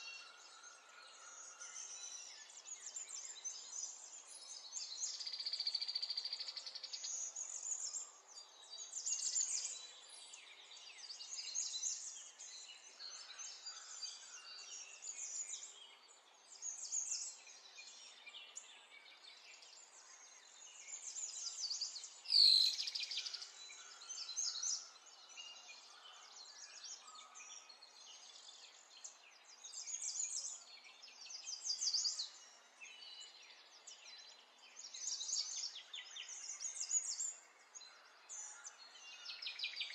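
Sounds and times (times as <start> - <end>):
small birds chirping and singing: 0.0 - 39.9.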